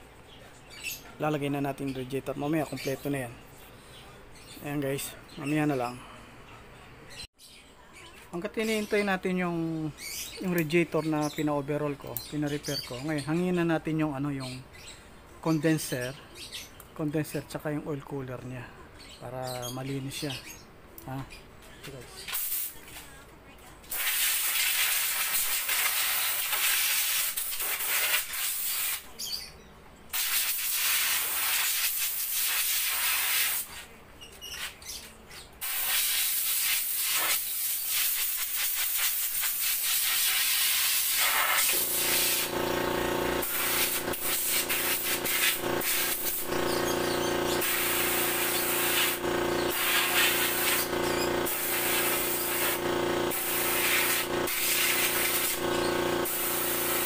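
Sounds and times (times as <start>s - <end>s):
compressed air gun hissing: 22.3s - 22.7s, 24.0s - 29.0s, 30.2s - 33.8s, 35.6s - 42.6s, 43.3s - 46.5s, 47.5s - 57.0s
steady machine hum: 41.7s - 57.0s.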